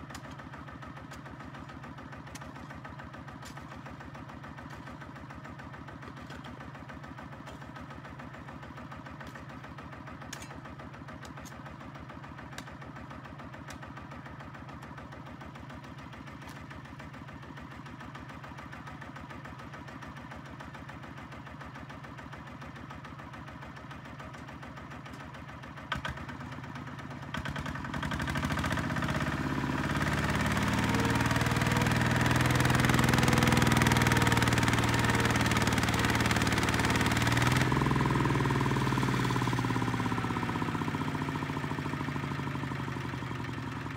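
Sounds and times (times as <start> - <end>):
diesel engine idling and revving: 0.0 - 43.9.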